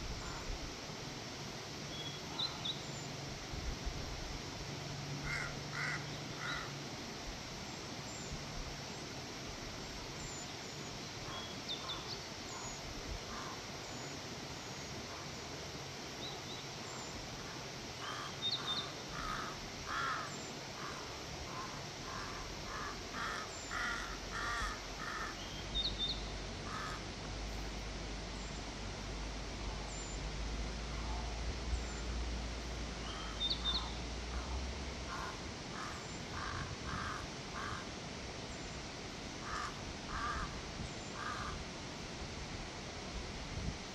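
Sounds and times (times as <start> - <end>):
crows cawing: 5.2 - 6.7, 19.1 - 25.4, 26.6 - 27.0, 35.1 - 37.9, 39.4 - 40.6, 41.2 - 41.6.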